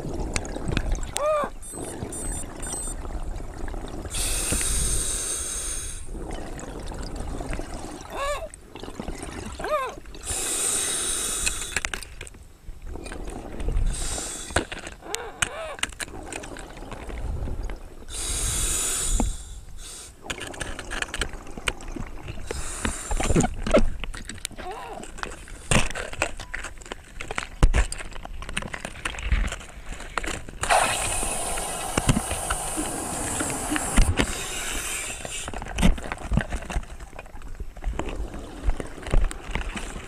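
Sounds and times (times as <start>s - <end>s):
exhaled bubbles rushing: 0.0s - 4.9s, 6.1s - 9.7s, 30.6s - 35.2s
short wavering whines: 1.6s - 3.0s.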